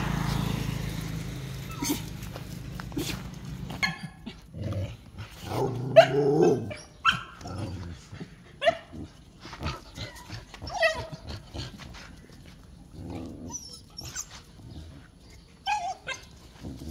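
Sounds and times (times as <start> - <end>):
dogs barking: 5.8 - 7.4.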